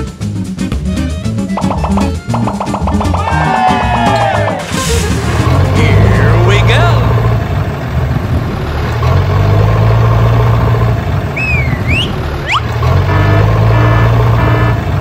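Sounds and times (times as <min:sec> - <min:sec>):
tractor engine running: 0:00.0 - 0:15.0
fast repeated high tones: 0:01.6 - 0:04.7
sliding whistle-like tones: 0:11.3 - 0:12.8.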